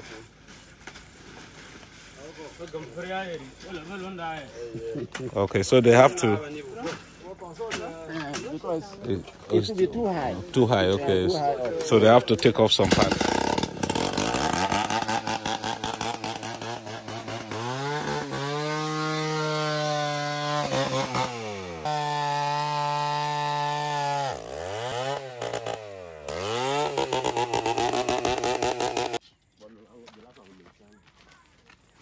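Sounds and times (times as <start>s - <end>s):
chainsaw cutting wood: 11.7s - 29.2s.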